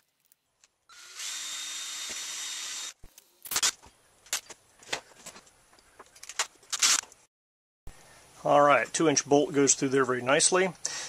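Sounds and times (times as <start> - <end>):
cordless drill boring: 0.9 - 3.0.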